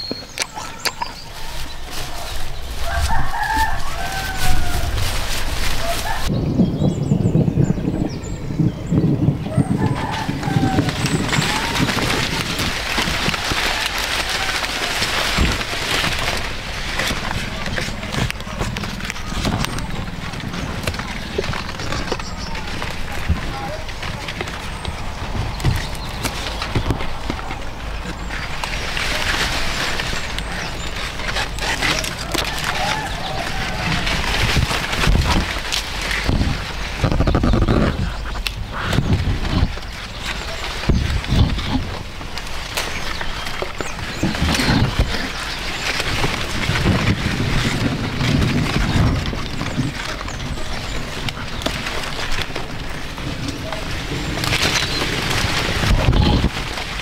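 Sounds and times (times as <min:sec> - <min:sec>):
corn leaves rustling: 0:00.0 - 0:06.9, 0:09.3 - 0:57.0
wind buffeting microphone: 0:00.0 - 0:57.0.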